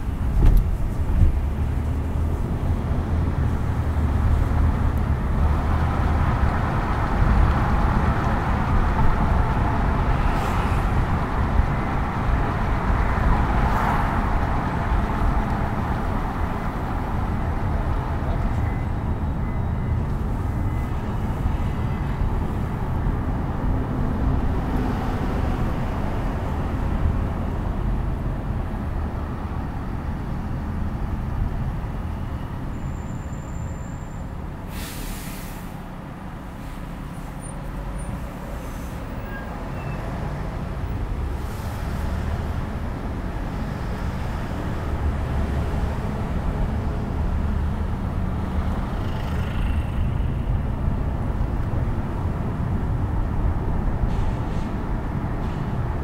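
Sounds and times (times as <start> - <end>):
car tyre and engine rumble: 0.0 - 40.0
short high hiss: 34.7 - 35.8.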